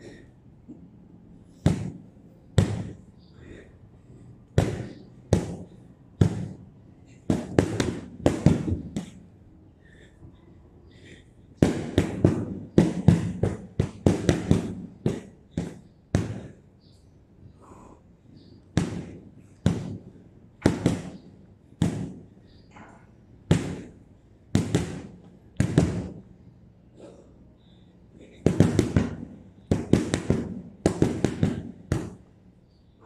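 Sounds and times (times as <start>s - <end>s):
gloves punching heavy bag: 1.6s - 2.0s, 2.6s - 3.0s, 4.6s - 6.6s, 7.3s - 9.2s, 11.6s - 16.6s, 18.8s - 22.2s, 24.6s - 26.2s, 28.3s - 32.3s.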